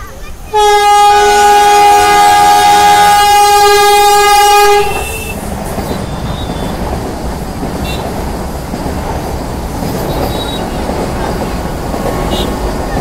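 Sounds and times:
train wheels rumbling on rails: 0.0s - 13.0s
train horn blast: 0.5s - 6.6s, 7.8s - 8.2s, 12.3s - 12.6s.

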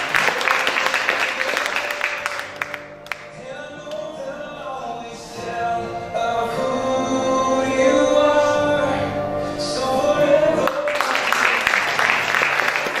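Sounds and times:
applause: 0.0s - 3.3s, 10.6s - 13.0s
person singing with music: 0.0s - 13.0s.

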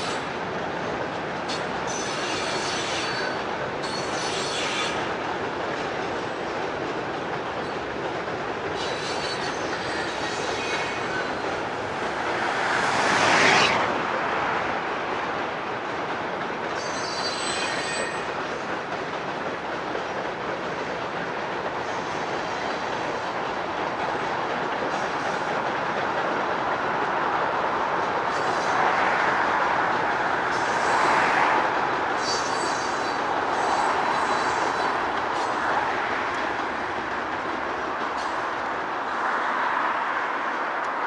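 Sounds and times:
freight train rumbling on trestle: 0.0s - 41.0s
wheel squeal: 1.9s - 5.0s, 8.8s - 11.4s, 16.8s - 18.3s, 32.2s - 34.9s
road vehicle passing: 11.9s - 14.6s.

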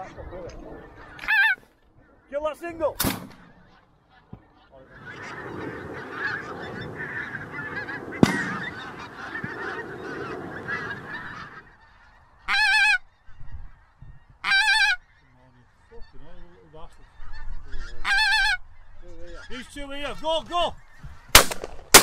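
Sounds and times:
geese calling: 0.0s - 2.7s, 3.3s - 22.0s
shotgun shot: 3.0s - 3.5s, 8.2s - 8.8s, 21.4s - 22.0s
sharp crack: 7.8s - 9.7s, 21.4s - 22.0s.

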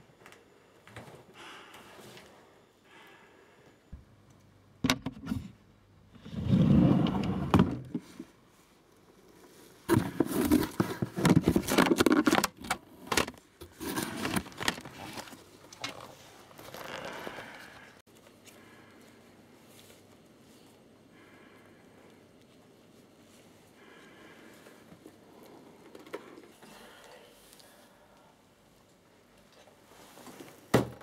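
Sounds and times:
rustling and scraping: 9.4s - 18.6s.

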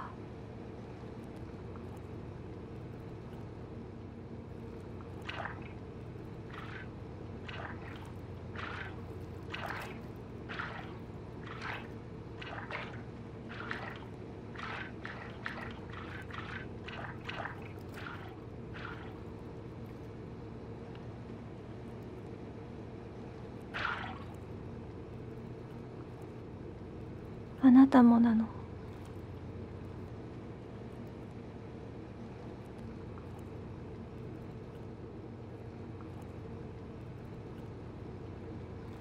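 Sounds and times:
low underwater drone: 0.0s - 39.0s
bubbling water: 4.6s - 20.1s, 23.7s - 24.5s.

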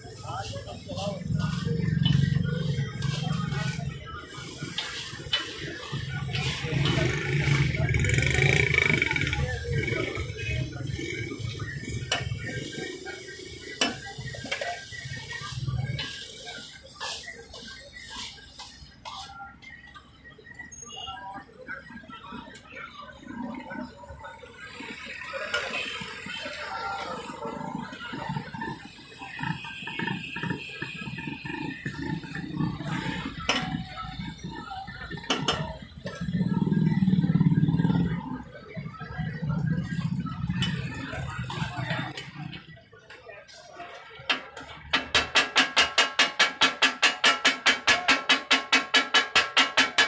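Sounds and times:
liver sizzling on a griddle: 0.1s - 7.6s, 12.0s - 19.3s
metal spatulas scraping griddle: 0.5s - 7.7s, 13.8s - 19.3s.

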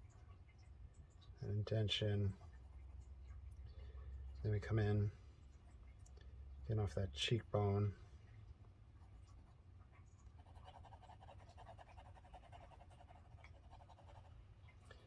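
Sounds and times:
pencil scratching on paper: 10.4s - 14.3s.

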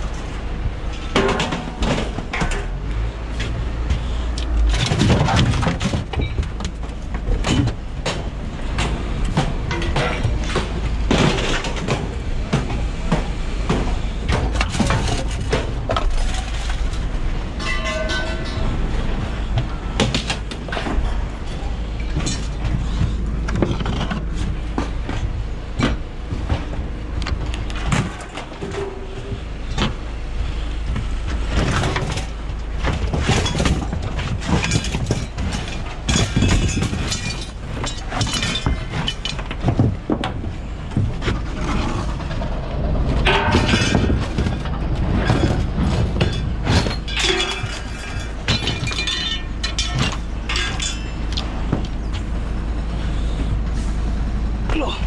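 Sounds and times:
scrap metal clanking: 7.2s - 26.7s, 31.4s - 52.3s.

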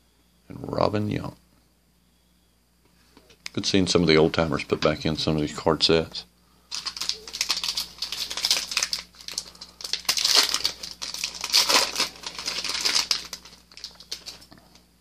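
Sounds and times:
foil wrapper crinkling and tearing: 6.7s - 14.6s.

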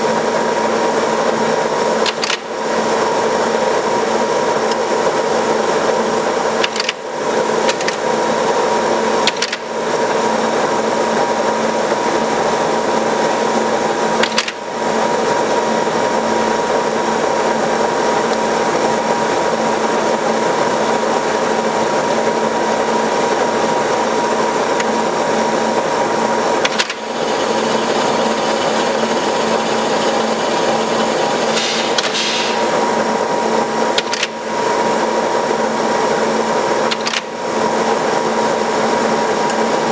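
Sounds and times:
automatic lathe running: 0.0s - 39.9s
short higher hiss: 31.6s - 32.8s.

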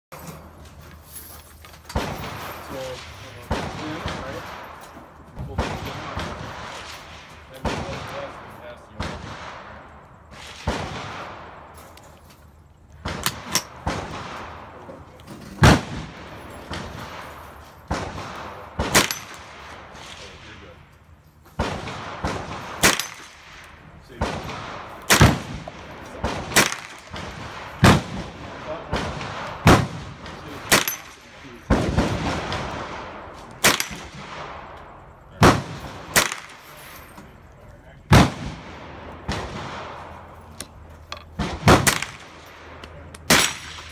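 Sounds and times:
gunshots: 1.9s - 4.8s, 5.4s - 11.8s, 13.0s - 20.8s, 21.6s - 36.8s, 38.0s - 40.4s, 41.3s - 43.9s.

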